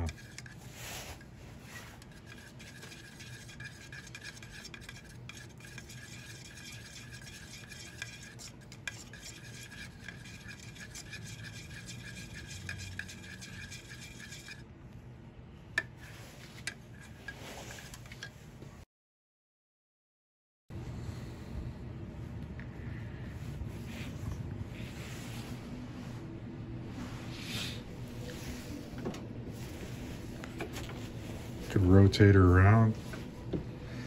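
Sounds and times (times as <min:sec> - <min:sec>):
stick stirring in metal can: 0:00.0 - 0:14.7, 0:16.0 - 0:18.3.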